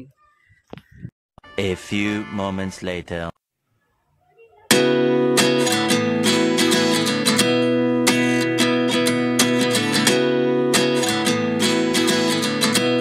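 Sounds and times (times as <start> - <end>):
acoustic guitar strumming: 4.7 - 13.0.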